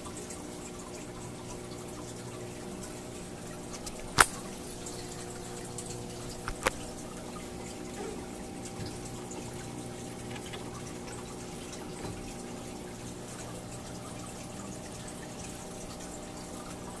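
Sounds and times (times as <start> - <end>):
aquarium filter water trickling: 0.0 - 17.0
steady machine hum: 0.2 - 17.0.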